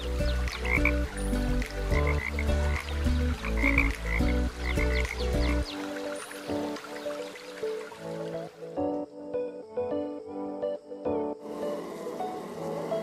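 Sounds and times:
background music with bass: 0.0s - 6.0s
frogs croaking: 0.0s - 13.0s.

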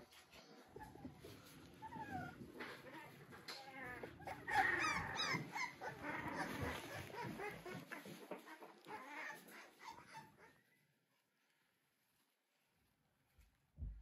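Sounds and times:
puppies whimpering: 0.5s - 10.8s.

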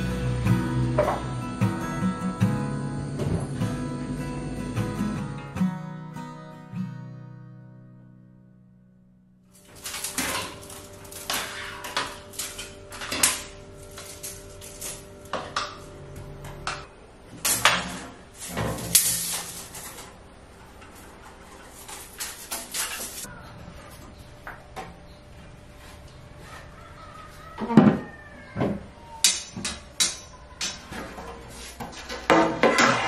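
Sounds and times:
faint steady hum: 0.0s - 5.6s.

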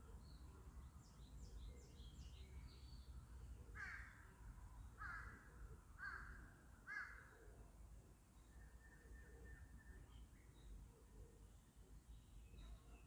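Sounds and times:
small birds chirping: 0.0s - 4.0s.

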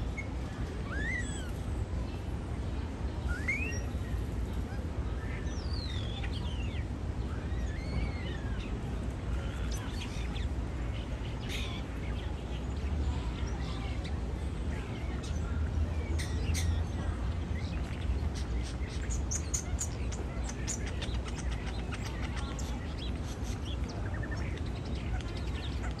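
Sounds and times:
bird whistling song: 3.2s - 4.0s.

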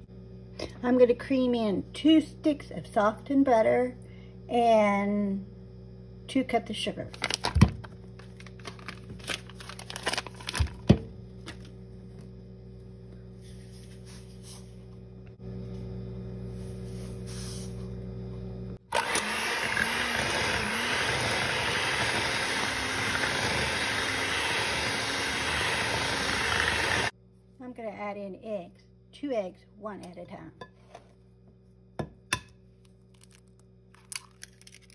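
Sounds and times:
steady low hum: 0.0s - 19.0s
electric hand mixer running: 18.8s - 27.1s.

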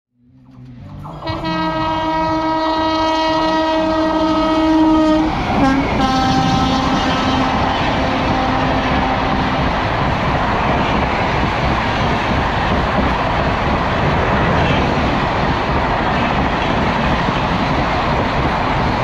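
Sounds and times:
train wheels rumbling and clattering: 0.5s - 19.0s
train horn blasts: 1.1s - 10.0s.

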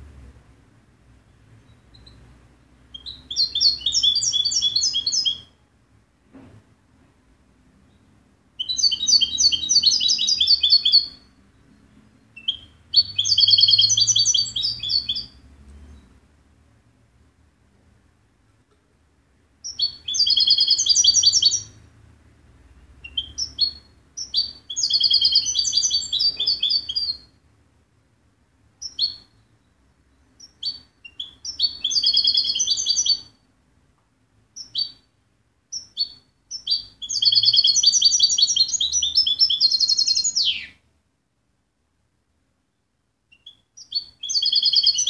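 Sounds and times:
bird twittering song: 1.3s - 2.2s, 2.9s - 5.6s, 7.9s - 16.2s, 19.6s - 21.8s, 23.0s - 27.4s, 28.8s - 33.4s, 34.6s - 40.8s, 43.3s - 45.0s.

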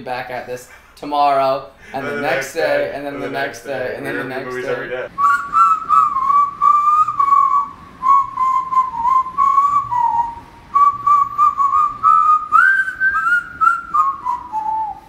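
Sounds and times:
person whistling a tune: 5.2s - 15.0s.

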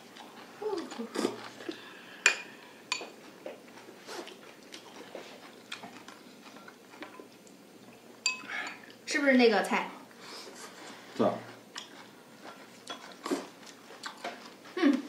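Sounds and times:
tableware clinking: 8.2s - 8.8s.

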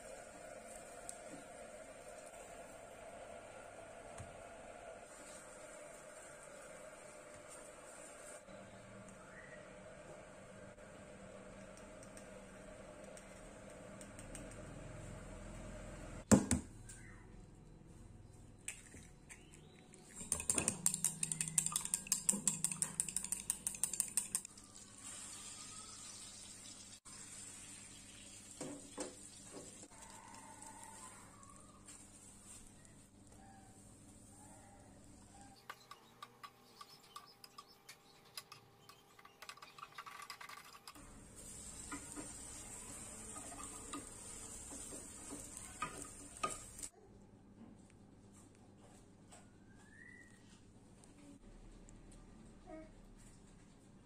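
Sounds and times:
chopsticks clicking against glass: 20.2s - 24.5s
omelette sizzling in a pan: 24.5s - 32.2s, 41.0s - 46.9s.

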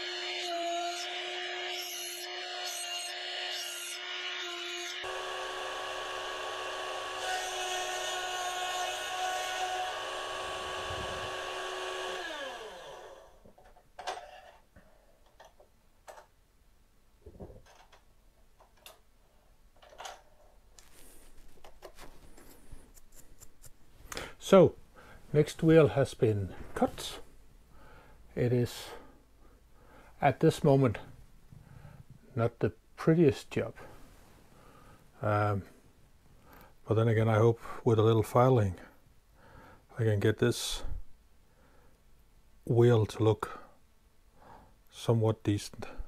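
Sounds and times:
mill motor whining: 0.0s - 13.4s.

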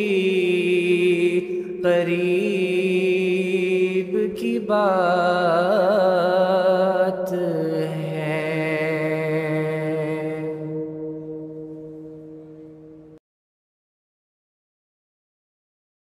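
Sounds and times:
man singing devotional song: 0.0s - 11.5s
low drone: 0.0s - 13.2s.

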